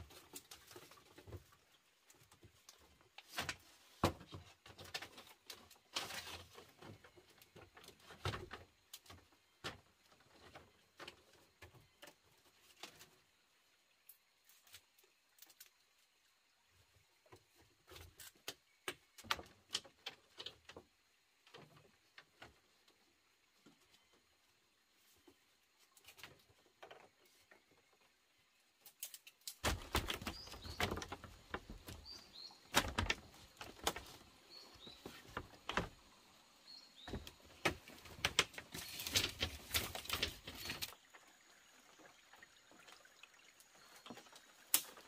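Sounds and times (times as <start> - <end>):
rustling: 0.0 - 9.1, 28.8 - 41.0.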